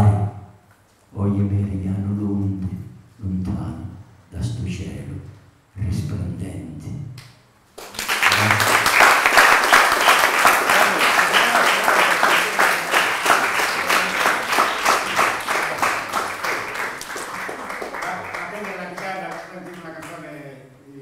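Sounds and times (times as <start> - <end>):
audience applauding: 7.8 - 20.4.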